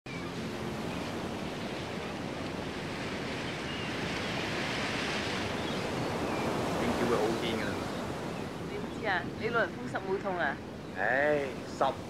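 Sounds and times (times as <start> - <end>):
surf waves breaking: 0.1 - 12.0.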